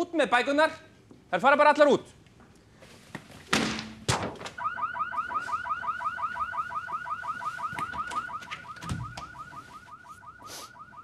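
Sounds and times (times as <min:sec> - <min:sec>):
car alarm warbling: 0:04.6 - 0:11.0.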